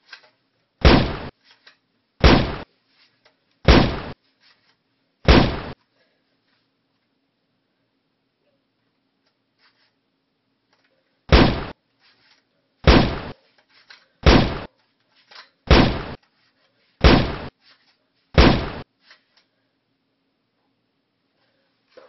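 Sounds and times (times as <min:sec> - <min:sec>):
shotgun blasts: 0:00.8 - 0:01.3, 0:02.2 - 0:02.6, 0:03.7 - 0:04.2, 0:05.3 - 0:05.8, 0:11.3 - 0:11.8, 0:12.8 - 0:13.3, 0:14.2 - 0:14.7, 0:15.7 - 0:16.2, 0:17.0 - 0:17.5, 0:18.4 - 0:18.8.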